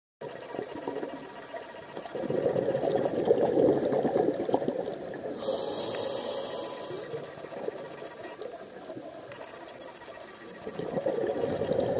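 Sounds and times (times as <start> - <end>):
underwater exhaled bubbles: 1.9 - 9.8, 10.5 - 11.9
breath hissing through regulator: 5.3 - 7.2.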